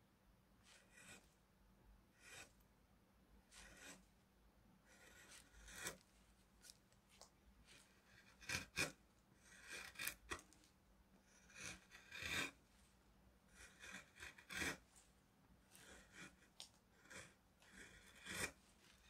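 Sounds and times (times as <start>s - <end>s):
gouge cutting wood shavings: 0.7s - 1.3s, 3.5s - 4.0s, 4.9s - 6.0s, 7.7s - 10.5s, 11.3s - 12.6s, 13.6s - 14.8s, 15.7s - 19.0s.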